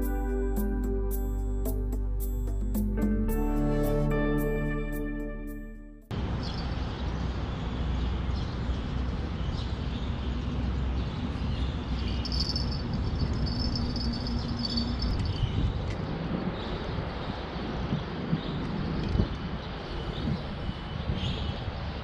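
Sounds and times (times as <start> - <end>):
low rumble of traffic: 6.1 - 22.0.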